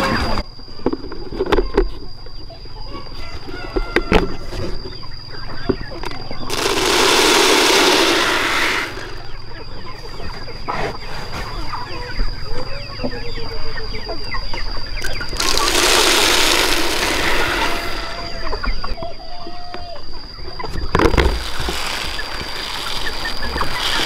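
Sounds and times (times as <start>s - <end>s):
chickens clucking: 0.0s - 24.0s
steady high whine: 6.4s - 10.2s, 14.8s - 19.0s
feed pellets poured into feeder: 6.5s - 9.3s, 15.3s - 18.3s, 21.2s - 24.0s.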